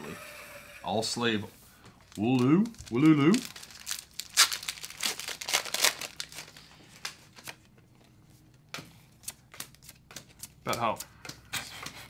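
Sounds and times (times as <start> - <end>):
plastic packaging crinkling: 2.0 - 7.7.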